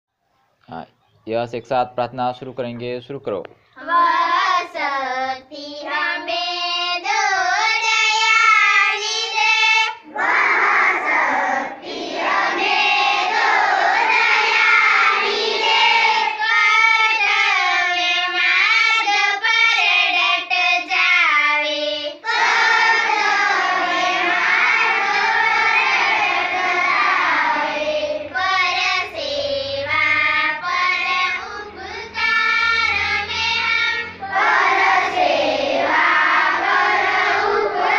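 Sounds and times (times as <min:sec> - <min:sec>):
children singing a prayer: 0:03.8 - 0:37.9.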